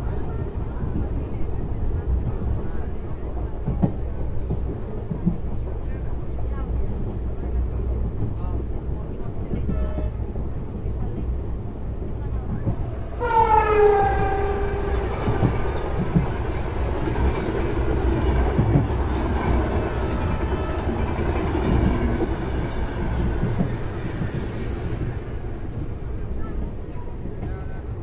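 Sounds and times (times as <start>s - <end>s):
train rumble and clickety-clack: 0.0s - 28.0s
train horn: 9.6s - 10.3s, 13.2s - 15.4s.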